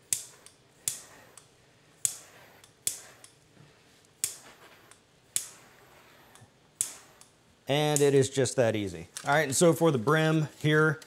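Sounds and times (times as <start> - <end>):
torch lighter igniter clicks: 6.4 - 7.3.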